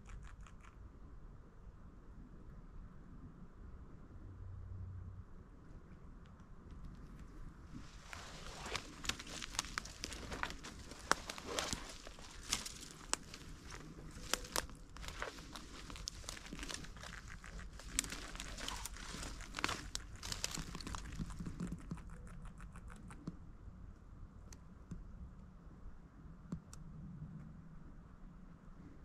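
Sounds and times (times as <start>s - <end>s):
footsteps crunching through dry grass: 7.7s - 21.8s.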